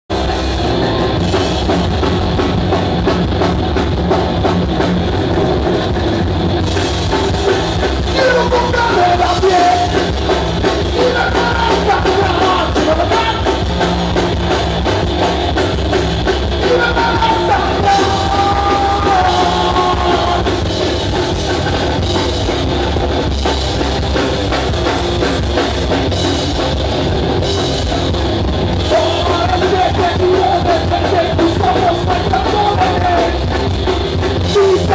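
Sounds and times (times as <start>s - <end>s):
drum kit: 0.1s - 34.9s
live rock band playing: 0.1s - 34.9s
person singing: 8.1s - 10.1s, 10.9s - 13.7s, 16.6s - 20.7s, 28.8s - 33.7s, 34.4s - 34.9s.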